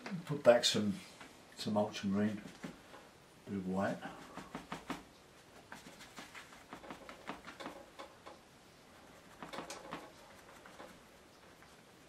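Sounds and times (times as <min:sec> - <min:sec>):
sponge dabbing paint: 0:03.9 - 0:12.0.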